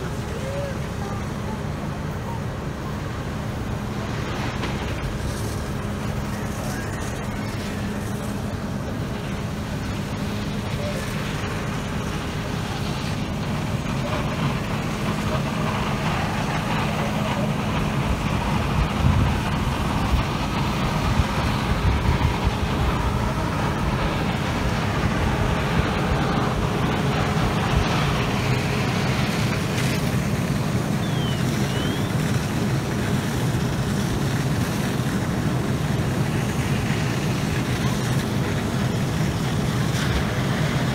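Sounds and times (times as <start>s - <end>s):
people's voices: 0.0s - 3.0s
fire engine pump running: 0.0s - 40.9s.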